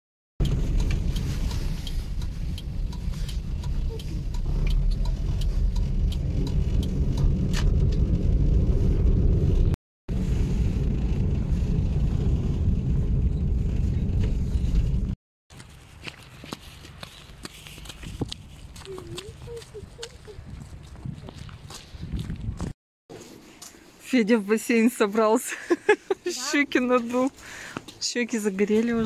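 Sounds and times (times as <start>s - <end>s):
car engine and tyre rumble: 0.4s - 24.0s.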